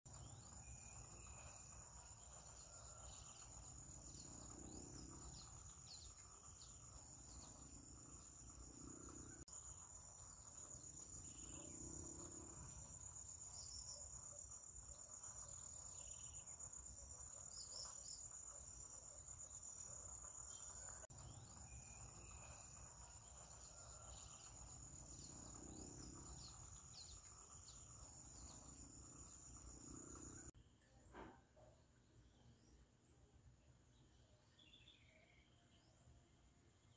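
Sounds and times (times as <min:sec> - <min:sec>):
high-pitched insect trill: 0:00.1 - 0:30.6.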